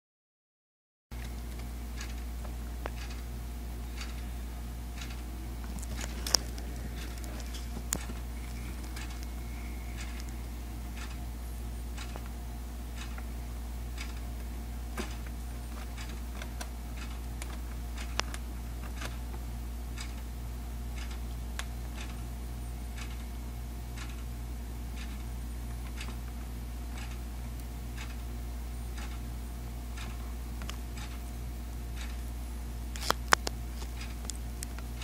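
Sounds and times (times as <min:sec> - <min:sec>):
low hum: 0:01.2 - 0:35.0
crab claws clicking: 0:05.0 - 0:10.4.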